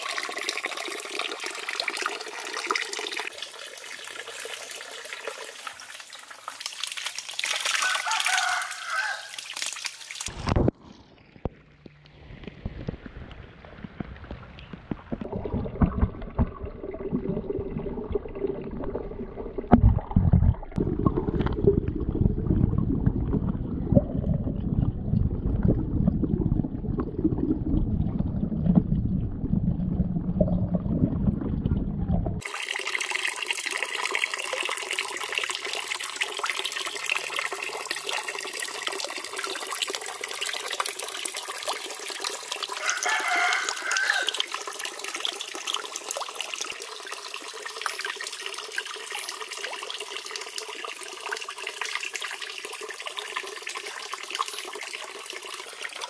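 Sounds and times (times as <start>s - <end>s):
water trickling into pond: 0.0s - 31.8s, 32.4s - 56.0s
muffled underwater water movement: 10.3s - 32.4s.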